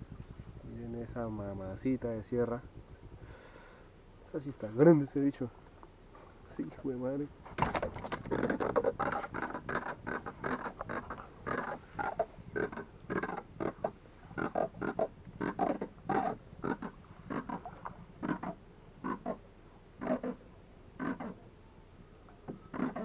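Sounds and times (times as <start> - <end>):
catfish making rapid calls: 8.1 - 19.4.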